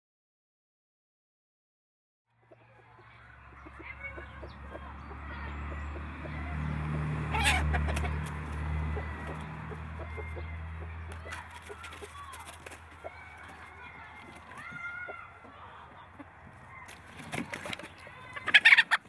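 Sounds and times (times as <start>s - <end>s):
chickens clucking: 2.4s - 19.0s
hen squawk: 7.3s - 8.1s, 18.3s - 19.0s.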